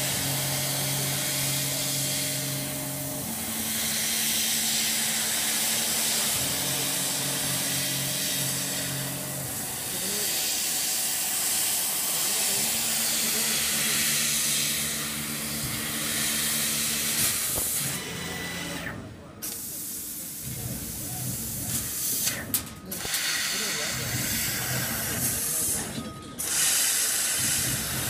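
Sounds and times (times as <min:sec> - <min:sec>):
laser cutting head hiss: 0:00.0 - 0:17.9, 0:19.6 - 0:28.0
low machine hum: 0:00.0 - 0:19.3.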